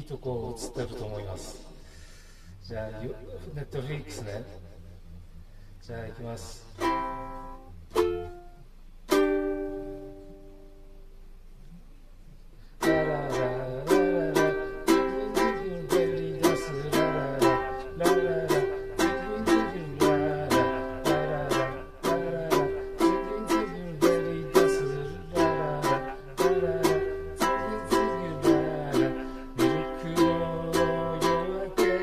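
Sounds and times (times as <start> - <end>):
ukulele strumming chords: 6.7 - 11.2, 12.8 - 32.0.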